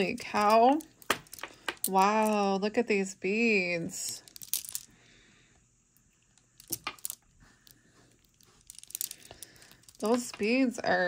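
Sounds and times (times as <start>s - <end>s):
beads clicking together: 0.0s - 2.5s, 4.0s - 4.9s, 6.3s - 10.5s.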